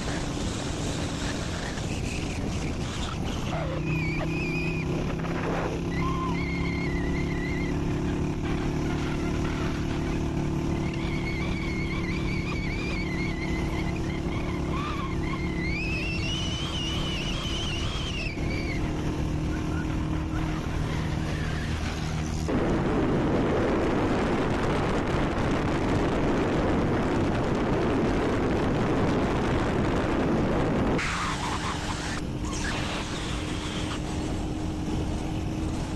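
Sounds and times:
car engine and road hum: 0.0s - 35.9s
rushing wind and tyre noise: 0.0s - 35.9s
wavering high whistling tone: 1.6s - 8.3s, 10.7s - 22.4s.

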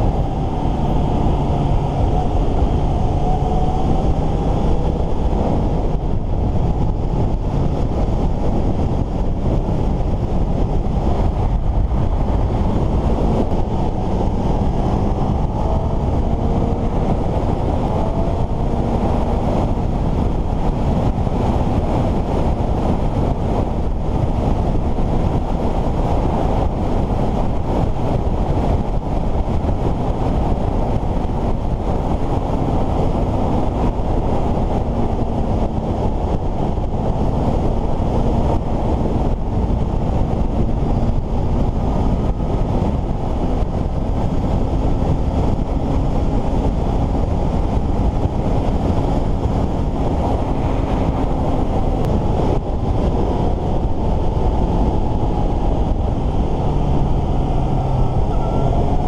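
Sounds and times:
heavy wind rush on microphone: 0.0s - 59.0s
motorcycle engine: 0.0s - 59.0s.

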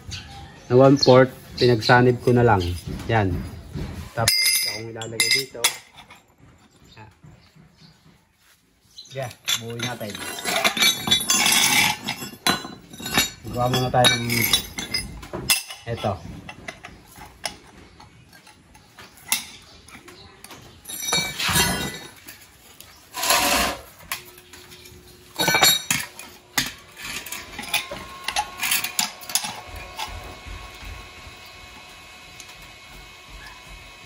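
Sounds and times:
steel pieces clinking and scraping: 4.2s - 6.3s, 9.1s - 17.6s, 20.8s - 30.2s.

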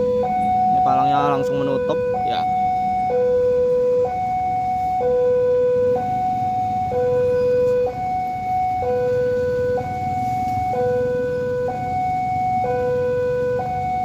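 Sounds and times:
two-tone electronic crossing alarm: 0.0s - 14.0s.

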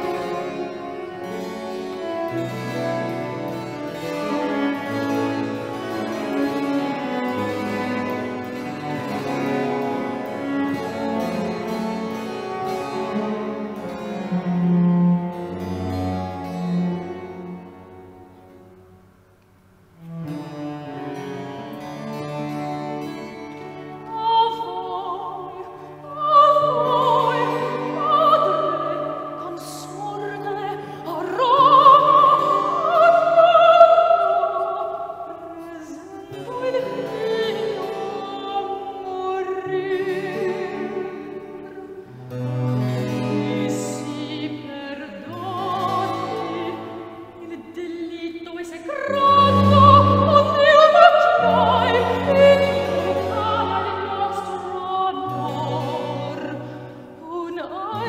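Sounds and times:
soprano singing operatic: 0.0s - 17.8s, 23.0s - 58.0s
long-necked lute: 0.0s - 19.3s, 20.0s - 58.0s
cello: 0.0s - 58.0s.

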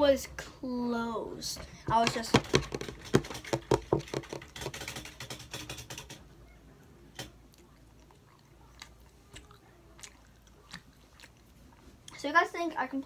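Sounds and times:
chewing with mouth clicks: 7.1s - 12.2s.

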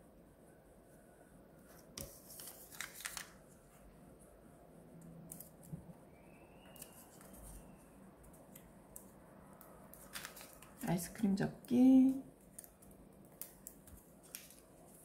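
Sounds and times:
paper folding rustles: 1.6s - 3.8s, 6.8s - 7.7s, 9.9s - 10.8s, 13.4s - 15.0s.

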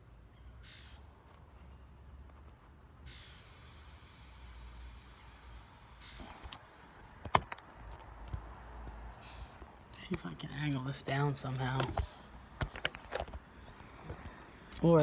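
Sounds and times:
air hissing out of inner tube: 3.0s - 9.7s
camera handling noise: 6.0s - 9.4s, 11.5s - 13.5s.

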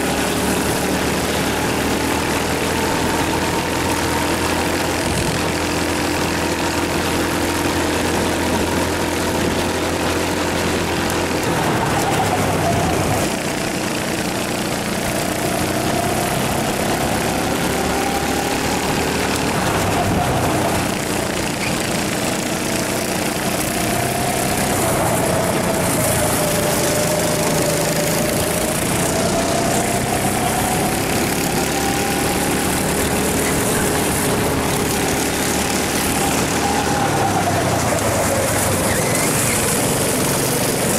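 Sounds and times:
kart engine revving: 0.0s - 40.9s.

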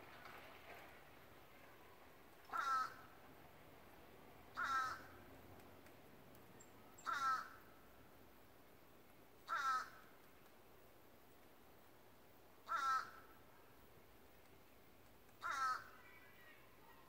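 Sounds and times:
bird calling: 6.6s - 7.6s, 15.4s - 17.0s.

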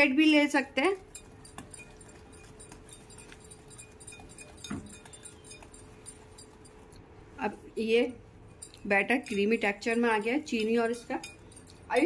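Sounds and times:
whisk clicking against glass bowl: 1.0s - 7.0s, 8.5s - 12.0s.

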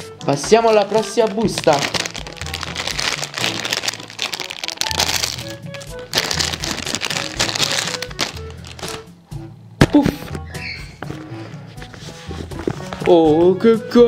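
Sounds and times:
background music with bass line: 0.0s - 14.0s
foil packet crinkling: 0.4s - 9.1s.

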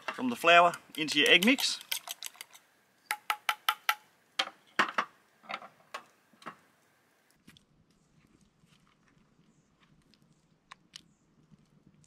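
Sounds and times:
fork clinking in metal bowl: 1.0s - 2.5s.

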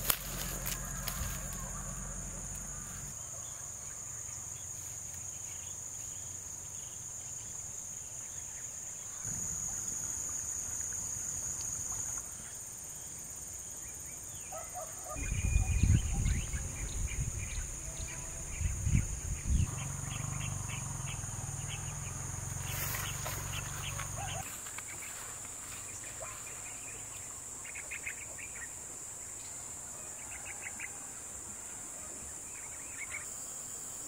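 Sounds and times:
high-pitched insect drone: 0.0s - 7.6s, 15.1s - 27.1s.

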